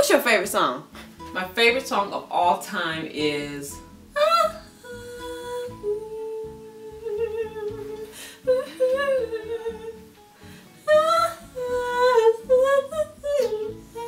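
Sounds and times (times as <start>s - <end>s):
soft guitar music: 0.0s - 14.0s
woman humming a melody: 4.2s - 10.1s, 10.8s - 14.0s.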